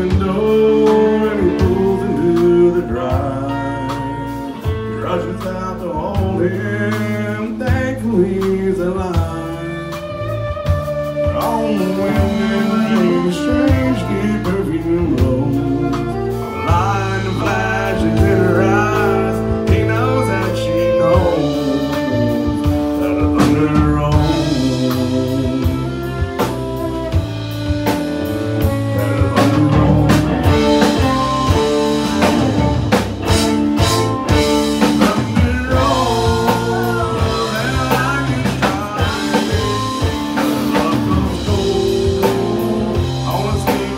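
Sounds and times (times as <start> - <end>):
bass: 0.0 - 43.9
drum kit: 0.0 - 43.9
electric and acoustic guitars: 0.0 - 43.9
fiddle: 8.8 - 43.9.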